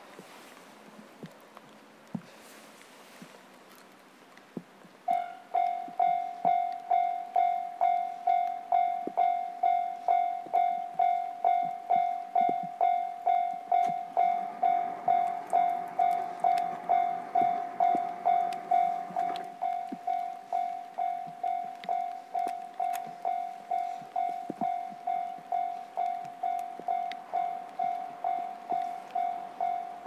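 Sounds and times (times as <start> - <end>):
faint low rumble: 0.0 - 30.0
level-crossing bell ringing: 5.1 - 30.0.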